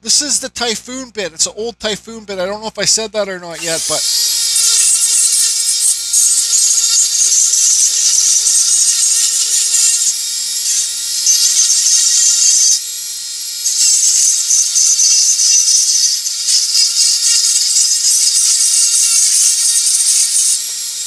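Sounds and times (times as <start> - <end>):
rotary tool whining: 3.5 - 21.0
burr rasping into wood: 3.6 - 12.8.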